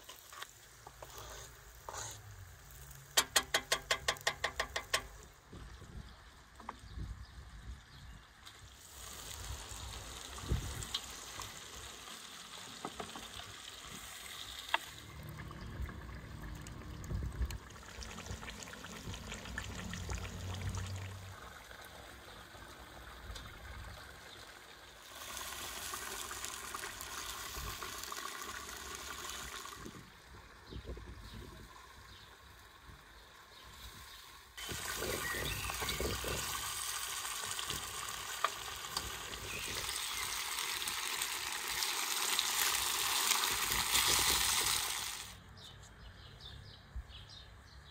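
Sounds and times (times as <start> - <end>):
meat sizzling in hot oil: 0.0 - 5.2, 8.7 - 16.6, 25.0 - 29.9, 33.8 - 45.4.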